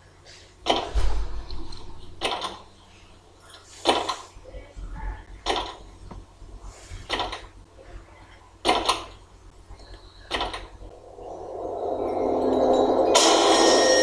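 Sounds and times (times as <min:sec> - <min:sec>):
low steady hum: 0:00.0 - 0:14.0
harsh swishing sounds: 0:10.9 - 0:14.0.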